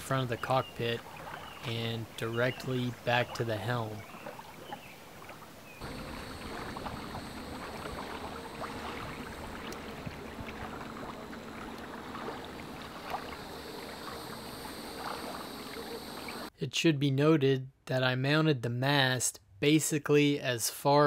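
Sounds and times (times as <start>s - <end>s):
water splashing against kayak hull: 0.0s - 16.5s.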